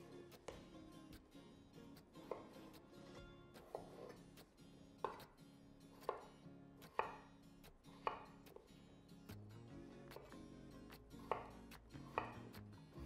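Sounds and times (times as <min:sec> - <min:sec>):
knife chopping potatoes on wooden board: 0:02.0 - 0:02.8, 0:03.6 - 0:04.2, 0:05.0 - 0:08.7, 0:10.1 - 0:13.0.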